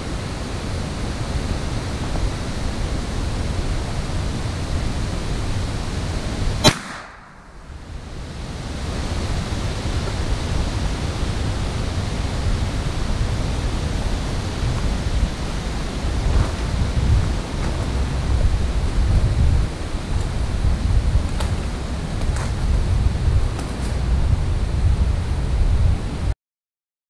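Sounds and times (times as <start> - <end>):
steady rushing noise: 0.0 - 26.3
sharp gunshot: 6.6 - 7.8.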